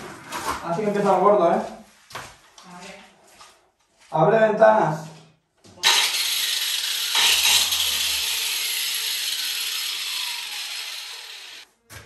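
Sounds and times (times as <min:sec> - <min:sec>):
angle grinder sanding wall: 0:05.8 - 0:11.7.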